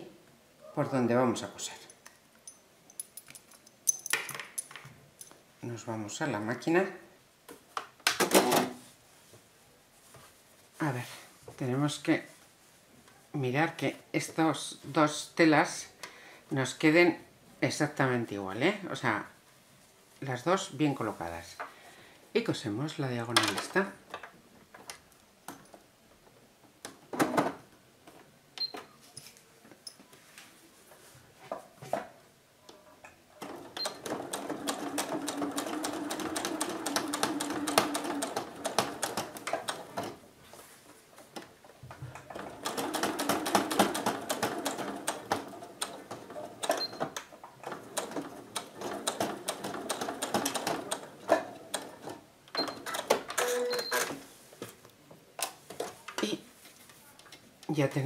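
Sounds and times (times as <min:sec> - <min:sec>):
sewing machine stitching: 0:33.4 - 0:40.2, 0:42.2 - 0:54.1.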